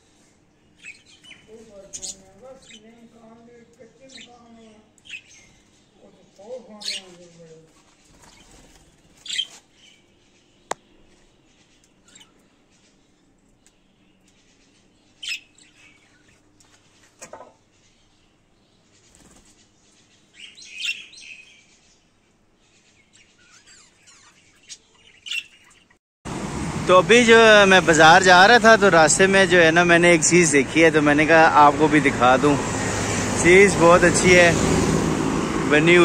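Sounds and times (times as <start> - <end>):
budgerigars chirping: 0.7 - 13.1, 13.9 - 16.5, 17.6 - 22.0, 22.6 - 26.0.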